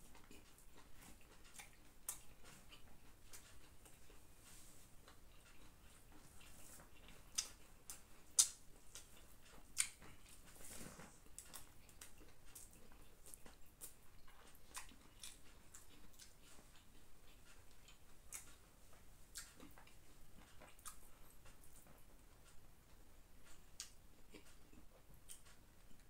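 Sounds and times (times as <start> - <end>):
wet chewing and lip-smacking: 0.0 - 10.6, 11.2 - 26.0.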